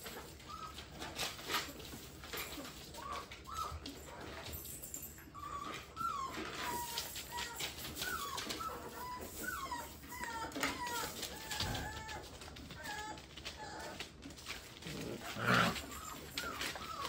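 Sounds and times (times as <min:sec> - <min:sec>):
puppies whining and yipping: 0:00.0 - 0:17.0.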